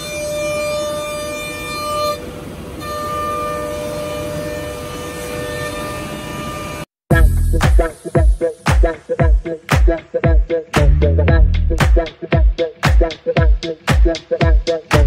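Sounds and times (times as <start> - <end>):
music: 7.1 - 15.0
noisy rumble: 10.8 - 12.2.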